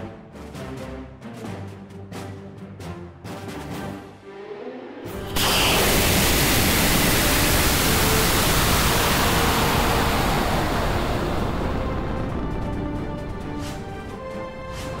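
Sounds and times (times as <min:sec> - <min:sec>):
air rushing past: 0:05.1 - 0:12.3
rocket motor roaring: 0:05.1 - 0:12.4.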